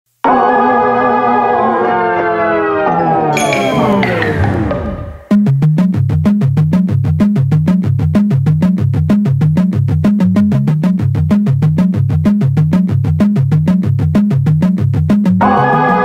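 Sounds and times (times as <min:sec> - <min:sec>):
electronic music with synth bass: 0:03.4 - 0:05.4.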